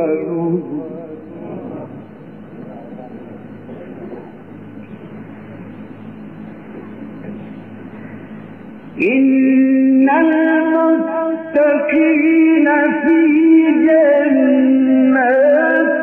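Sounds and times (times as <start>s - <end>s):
man reciting in melismatic chant: 0.0s - 2.0s, 9.0s - 16.0s.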